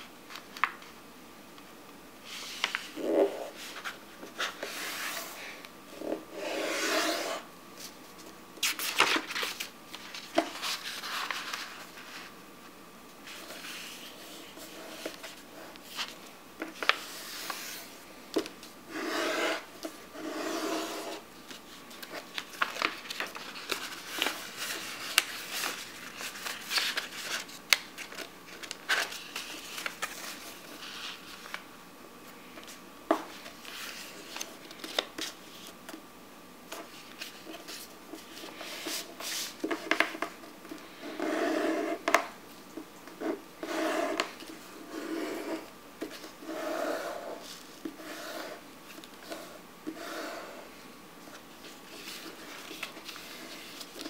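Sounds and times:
paper rustling while folded: 7.8 - 12.3, 20.3 - 31.6, 51.3 - 54.0.

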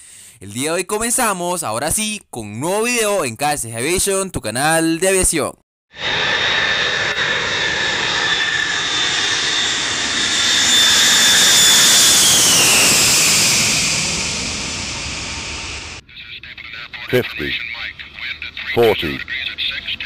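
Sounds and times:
jet aircraft passing overhead: 6.0 - 20.0.

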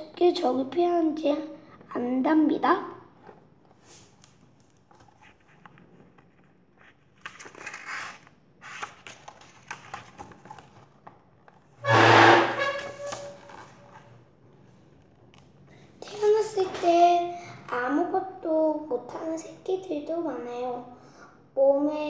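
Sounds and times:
book pages rustling: 3.1 - 11.7.

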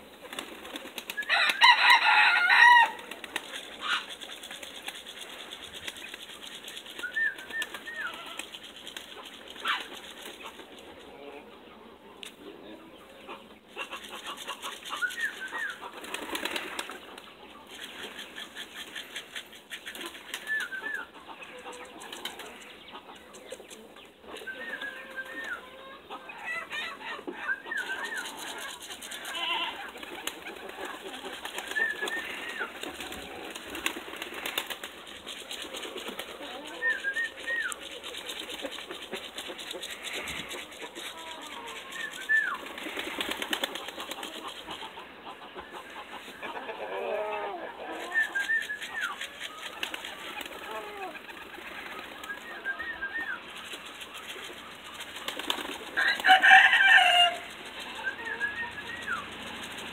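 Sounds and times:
pigeon wings flapping: 0.2 - 10.8, 14.0 - 21.0, 22.0 - 22.6, 27.8 - 44.8, 48.0 - 59.9.

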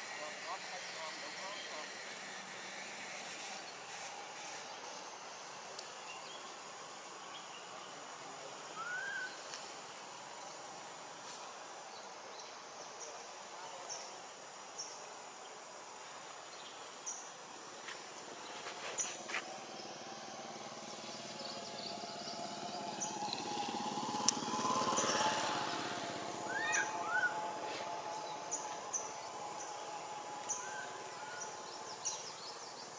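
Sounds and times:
steady background hiss: 0.0 - 32.9
low hum: 18.3 - 32.0
high bird chirps: 26.5 - 27.4.

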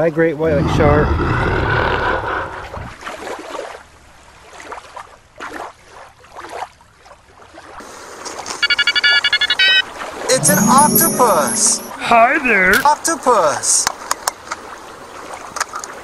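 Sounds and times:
wind noise: 0.7 - 3.0.

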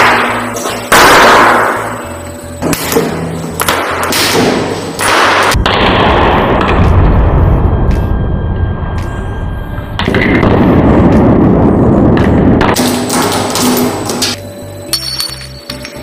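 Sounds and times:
cartridges bursting with bangs: 0.0 - 7.1, 10.0 - 15.6.

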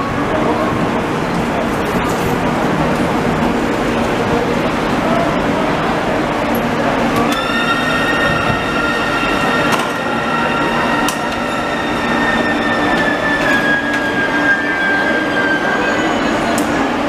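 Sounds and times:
low train rumble: 0.0 - 17.0
train wheels squealing: 7.3 - 17.0.

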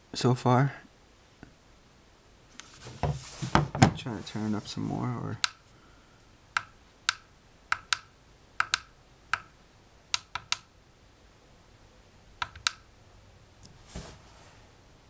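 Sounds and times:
speaker push buttons clicking: 6.6 - 9.5, 10.2 - 10.7, 12.4 - 12.8.

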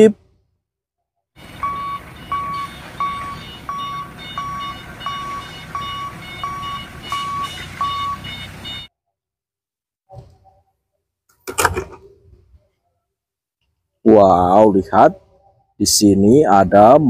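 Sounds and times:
forklift running: 1.4 - 8.9
forklift warning beeps: 1.4 - 8.9.

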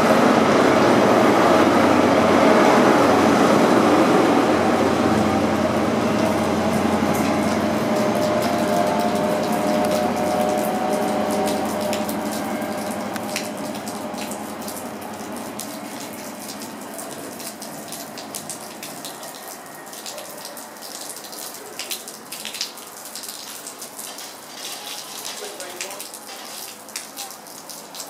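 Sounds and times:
train diesel engine: 0.0 - 20.8
rain hissing: 0.0 - 27.9
raindrops ticking: 5.6 - 28.0.

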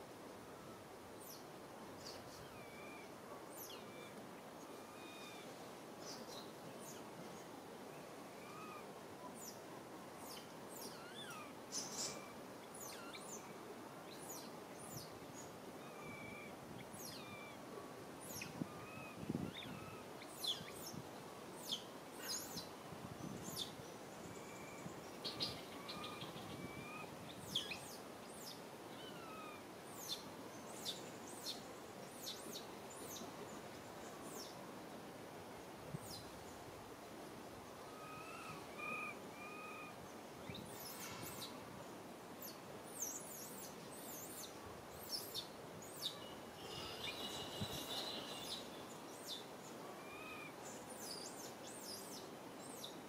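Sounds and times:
outdoor background hiss: 0.0 - 53.0
small birds chirping: 10.2 - 17.6, 18.2 - 21.0, 21.6 - 34.6, 42.4 - 53.0.

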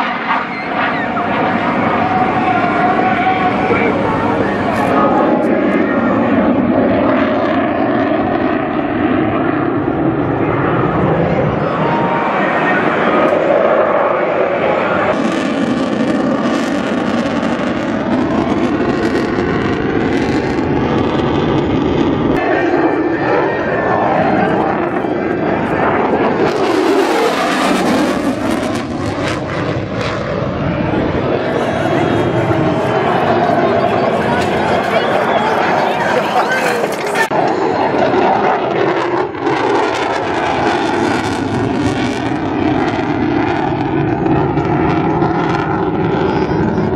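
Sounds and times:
jet engines flying overhead: 0.0 - 46.9.

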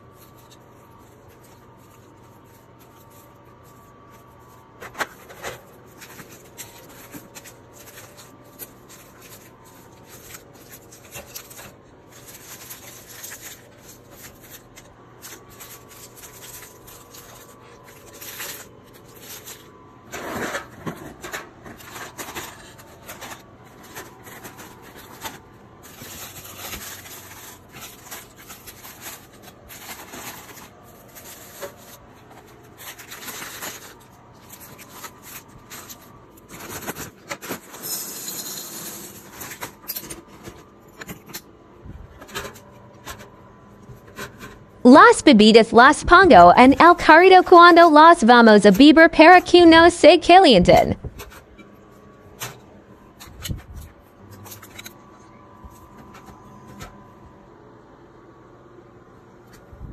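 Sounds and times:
plastic wrappers rustling: 0.0 - 37.9.

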